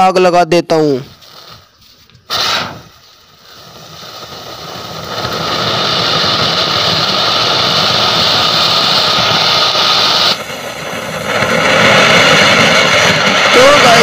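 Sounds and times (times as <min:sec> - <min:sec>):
firework fountain hissing sparks: 0:00.1 - 0:14.0.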